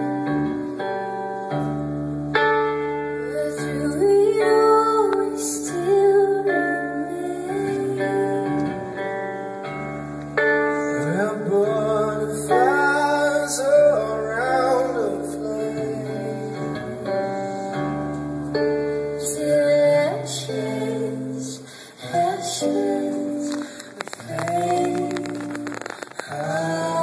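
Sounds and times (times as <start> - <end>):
guitar accompaniment: 0.0 - 27.0
woman singing: 3.2 - 9.1, 19.0 - 27.0.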